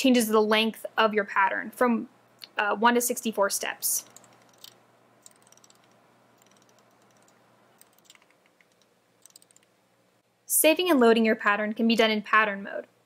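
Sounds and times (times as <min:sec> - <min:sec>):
rotary encoder clicks: 0:04.0 - 0:09.8.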